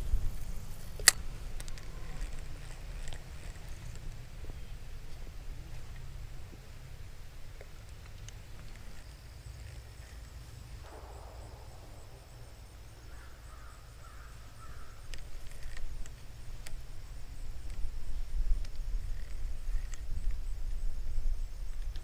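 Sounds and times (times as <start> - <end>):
bird calls: 10.8 - 15.8
fishing reel clicks: 18.6 - 20.0.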